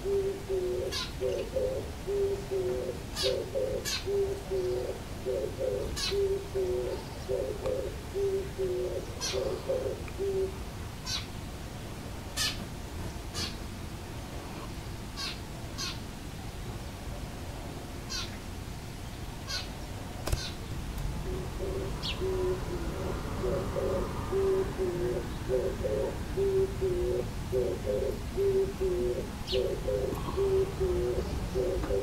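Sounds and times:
dove cooing: 0.0 - 11.3, 20.3 - 32.0.

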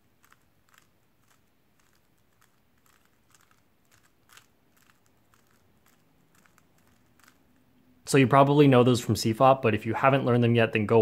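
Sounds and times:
puzzle cube clicks: 0.1 - 7.6.

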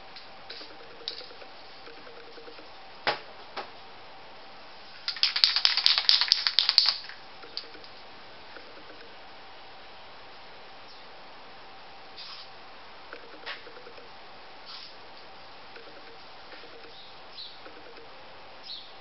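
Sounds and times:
spray can rattling: 5.0 - 7.8.

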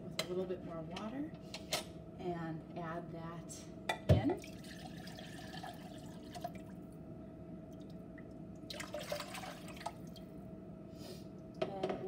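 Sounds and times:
steady low hum: 0.0 - 12.0
water pouring into pot: 4.4 - 6.7, 8.7 - 9.9.

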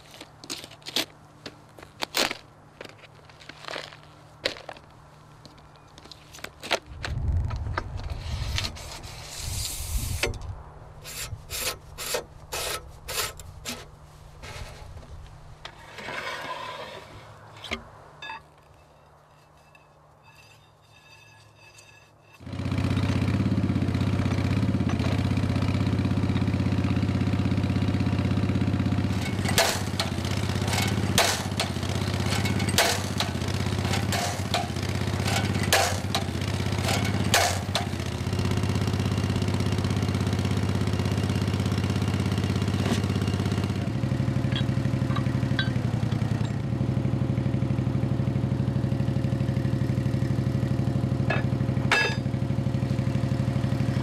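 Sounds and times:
steel rods clanking: 15.6 - 22.5, 29.1 - 38.1, 44.2 - 46.7, 51.2 - 52.4
drilling rig engine running: 17.5 - 54.0
hammer blows on anvil: 51.3 - 52.3.

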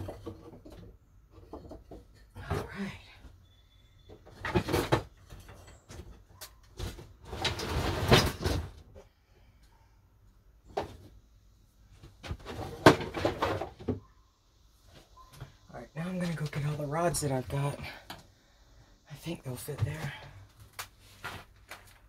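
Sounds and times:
wooden rods knocking and scraping: 0.0 - 3.1, 4.1 - 9.1, 12.0 - 14.1.

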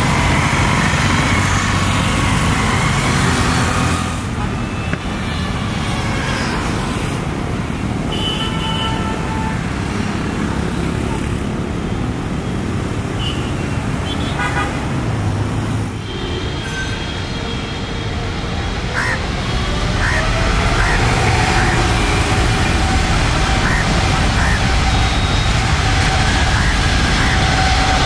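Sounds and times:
road traffic noise: 0.0 - 28.0
vehicle horn toots: 8.1 - 9.7.

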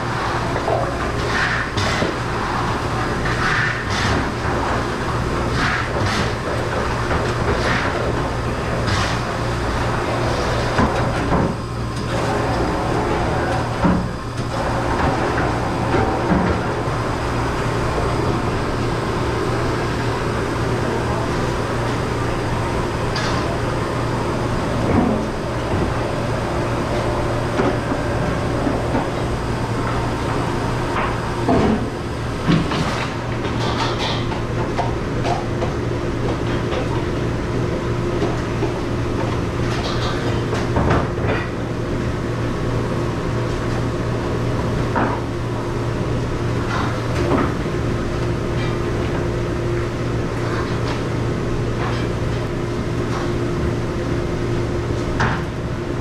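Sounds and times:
dish machine humming: 0.0 - 56.0.

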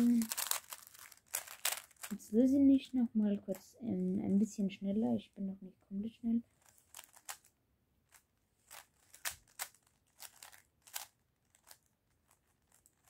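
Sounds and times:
puzzle cube clicking: 6.7 - 7.5, 8.1 - 11.8.

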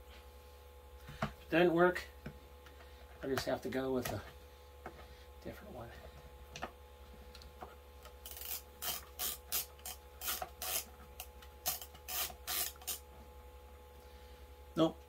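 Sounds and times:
screw rasping in plastic: 8.1 - 13.0.

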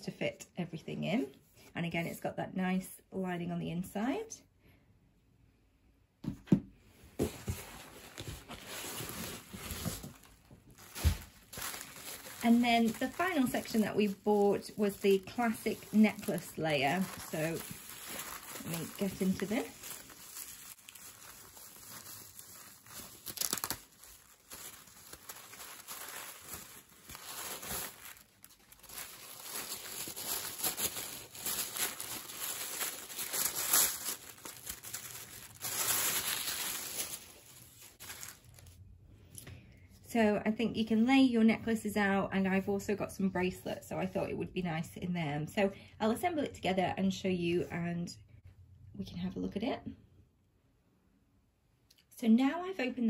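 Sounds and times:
bubble wrap crinkling: 7.2 - 38.8
packing material rustling: 7.2 - 38.8.

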